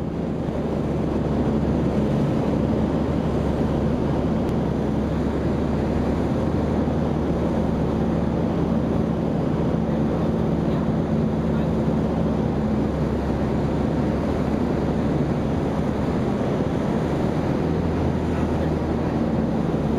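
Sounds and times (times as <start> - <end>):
aircraft engine and propeller: 0.0 - 19.9.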